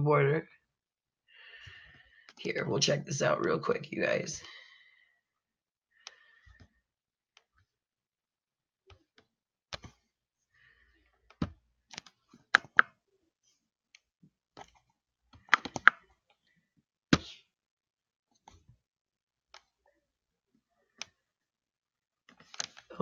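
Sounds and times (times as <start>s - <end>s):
computer mouse clicking: 11.4s - 12.9s, 15.4s - 16.0s.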